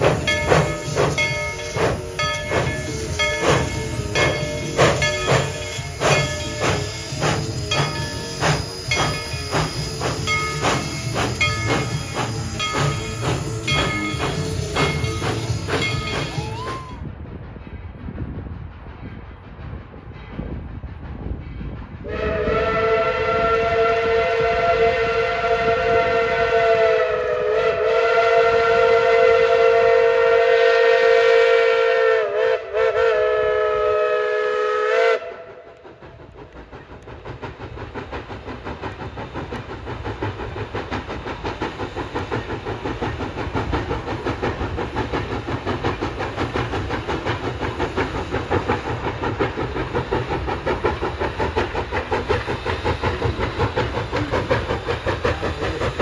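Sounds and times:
steam locomotive chime whistle: 0.0 - 17.0, 22.0 - 35.8
locomotive exhaust chuffs and hiss: 0.0 - 56.0.

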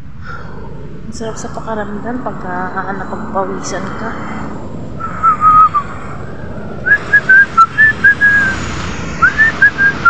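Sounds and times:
woman whistling a tune: 6.9 - 8.6.

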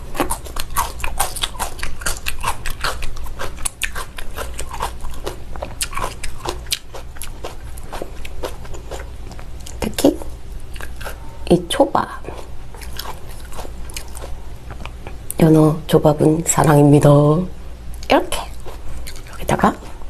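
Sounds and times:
mouth chewing clicks and smacks: 0.2 - 9.9, 18.0 - 19.5.

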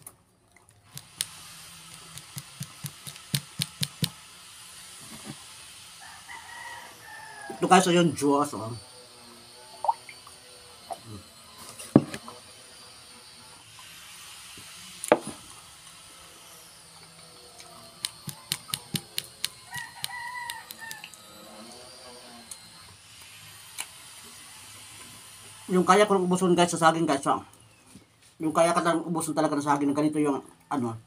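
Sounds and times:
rooster crowing: 6.0 - 8.1, 17.7 - 21.7.

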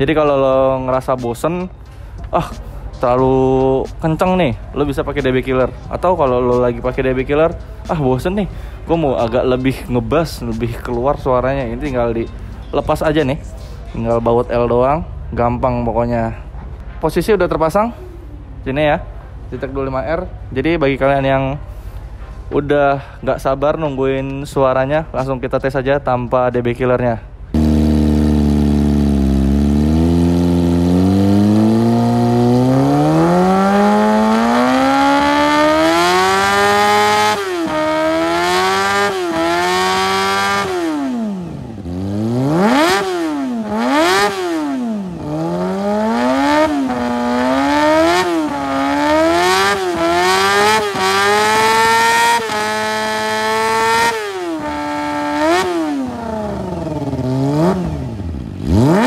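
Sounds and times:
motorcycle engine revving: 27.5 - 59.0.

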